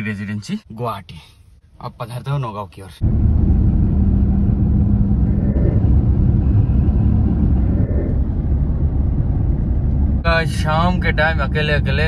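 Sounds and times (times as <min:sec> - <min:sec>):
car engine and road noise: 0:01.4 - 0:12.0.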